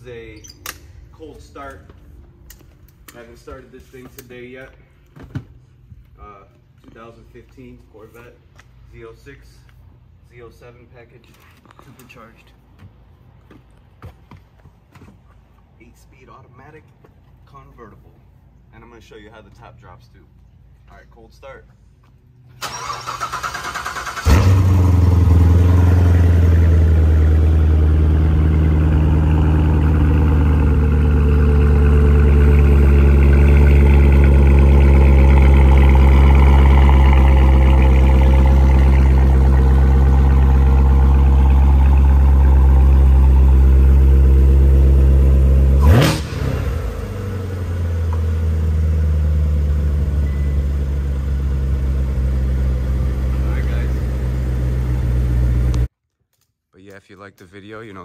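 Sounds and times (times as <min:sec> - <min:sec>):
engine sharp burst: 0:22.6 - 0:44.7, 0:45.7 - 0:47.2
car engine idling: 0:22.7 - 0:55.9.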